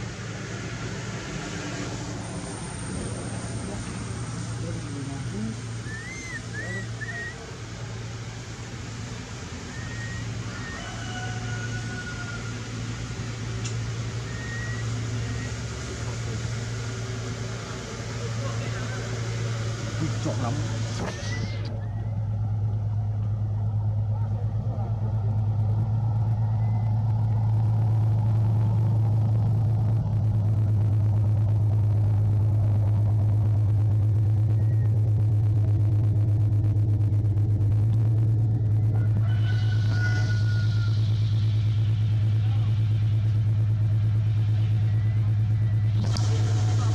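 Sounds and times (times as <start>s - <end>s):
constant rumble: 0.0s - 46.9s
low hum: 0.0s - 46.9s
steady low drone: 0.0s - 46.9s
faint whistle-like tones: 5.7s - 7.6s, 9.6s - 11.2s, 14.1s - 15.8s, 21.1s - 22.3s, 26.3s - 27.2s, 34.4s - 35.1s, 44.1s - 46.4s.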